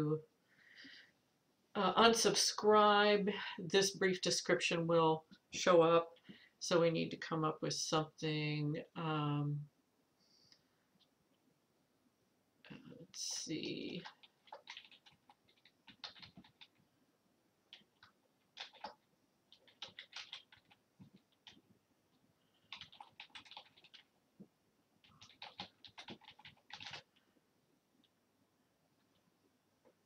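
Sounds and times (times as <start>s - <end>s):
keyboard typing: 13.3s - 16.8s, 17.7s - 21.7s, 22.6s - 24.2s, 25.0s - 27.3s.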